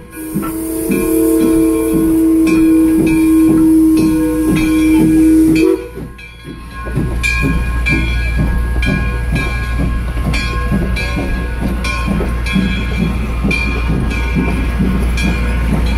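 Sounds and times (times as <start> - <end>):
steam locomotive whistle: 0.0 - 6.1
train coaches rolling rumble: 0.0 - 15.9.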